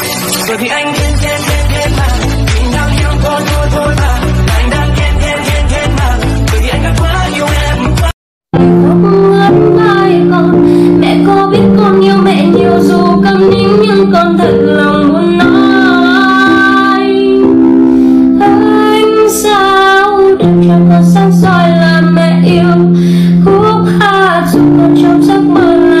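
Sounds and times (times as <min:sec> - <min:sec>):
woman singing: 0:00.4 - 0:17.7, 0:18.4 - 0:26.0
sustained chords: 0:08.6 - 0:19.2.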